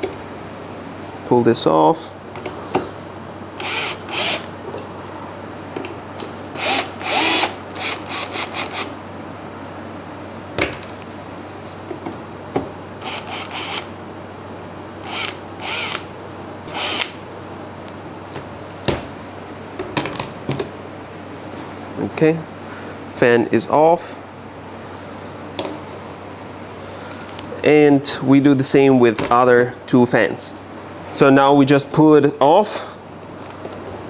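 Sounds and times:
cordless drill-driver running: 0:03.6 - 0:04.5, 0:06.6 - 0:08.9, 0:13.0 - 0:13.9, 0:15.0 - 0:16.1, 0:16.7 - 0:17.1.

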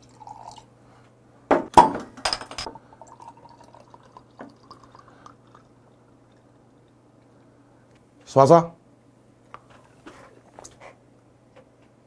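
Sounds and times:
beer trickling into a glass: 0:00.0 - 0:00.7, 0:02.7 - 0:07.0.

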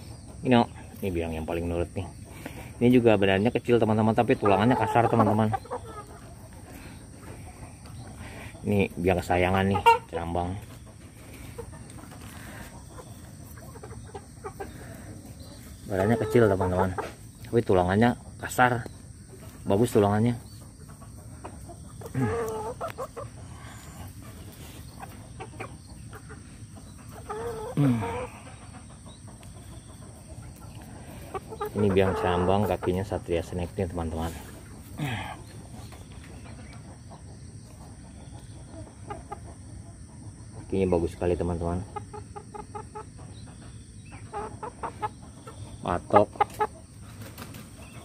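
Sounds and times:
chickens clucking and calling: 0:00.0 - 0:48.0.

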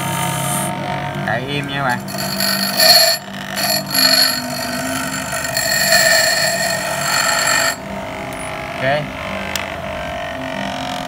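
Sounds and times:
bench grinder motor: 0:01.7 - 0:07.8
metal grinding hiss: 0:01.9 - 0:07.8.

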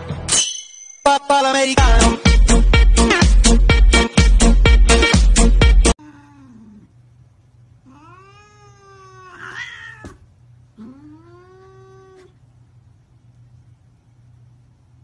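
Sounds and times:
cat meowing: 0:07.8 - 0:10.2, 0:10.8 - 0:12.4.

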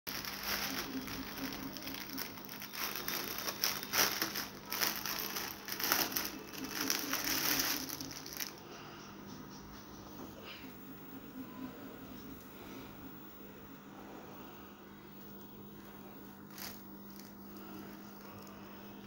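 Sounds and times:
plastic packaging crinkling: 0:00.1 - 0:08.6, 0:16.3 - 0:19.0.

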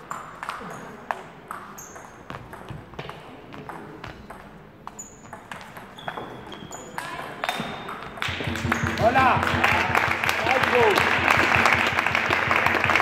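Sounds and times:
ball bouncing on table: 0:00.1 - 0:12.6
shoes squeaking on floor: 0:01.6 - 0:03.0, 0:03.6 - 0:09.2.

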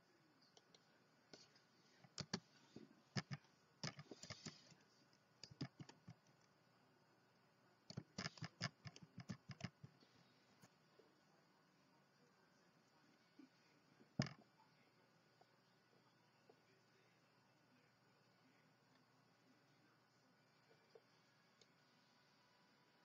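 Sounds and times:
keyboard keys typing: 0:02.1 - 0:02.4, 0:03.1 - 0:04.7, 0:05.4 - 0:06.3, 0:07.9 - 0:10.0.

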